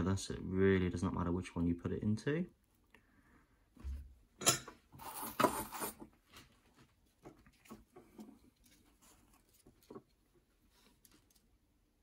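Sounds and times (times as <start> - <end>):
rustling: 5.0 - 11.9.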